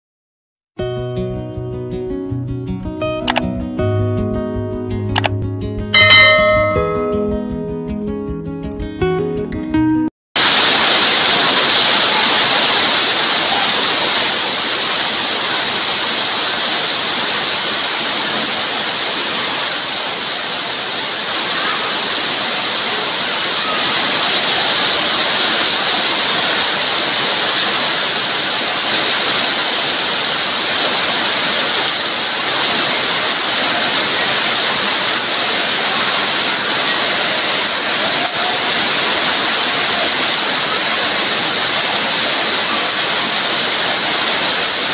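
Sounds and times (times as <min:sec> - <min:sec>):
heavy rain pouring: 0:10.4 - 0:44.9.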